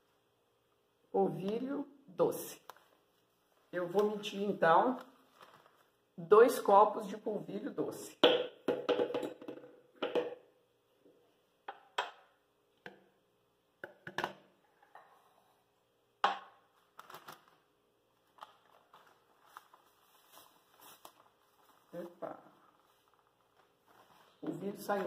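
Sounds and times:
plastic bag rustling: 0:02.6 - 0:06.1, 0:16.7 - 0:25.0.

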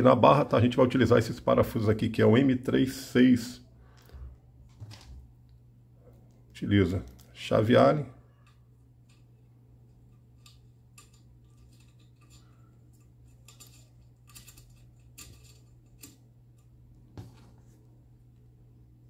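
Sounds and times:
allen key clicking on screw: 0:10.3 - 0:16.7.

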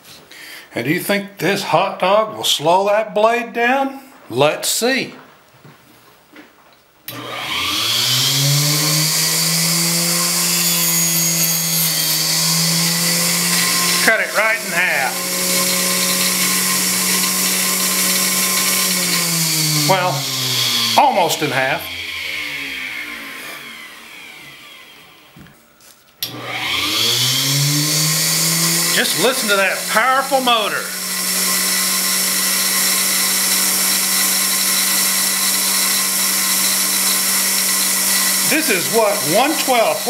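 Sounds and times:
table saw motor running: 0:07.1 - 0:25.4, 0:26.2 - 0:40.0.

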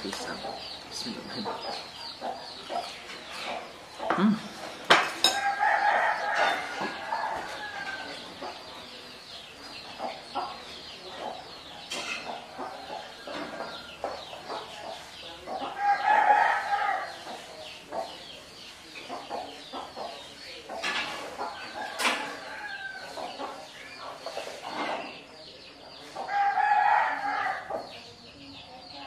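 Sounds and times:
fork clinking on china plate: 0:04.9 - 0:05.6
rooster crowing: 0:05.3 - 0:08.2, 0:26.3 - 0:27.7.

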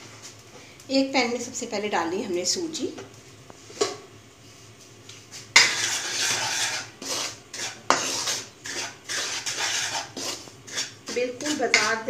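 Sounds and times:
spatula scraping semolina in pan: 0:05.3 - 0:12.0.

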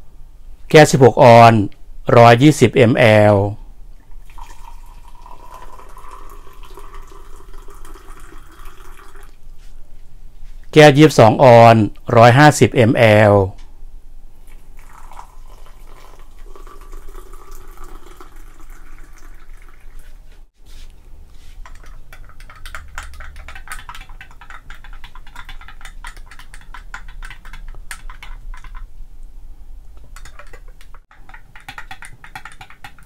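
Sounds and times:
hot water pouring into mug: 0:04.2 - 0:09.3, 0:14.5 - 0:20.1.

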